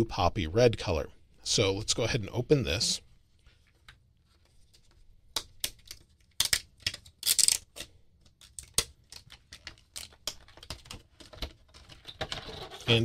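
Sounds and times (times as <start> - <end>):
packaging clicks and taps: 7.7 - 12.4.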